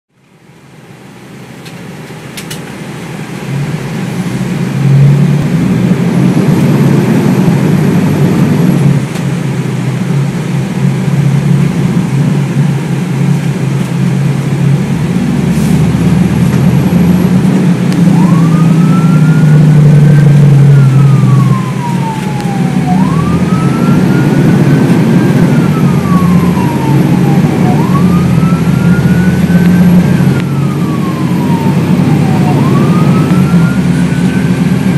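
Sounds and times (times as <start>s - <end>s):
fire engine drone: 0.1s - 34.9s
road noise: 0.1s - 34.9s
siren wailing: 4.5s - 9.1s, 12.8s - 34.9s.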